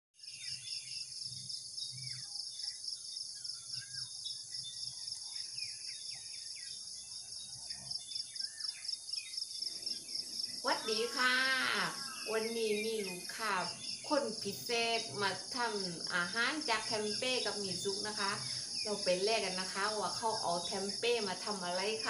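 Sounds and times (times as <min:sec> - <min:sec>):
high-pitched insect chorus: 0:00.3 - 0:22.0
birds chirping and whistling: 0:03.5 - 0:14.0.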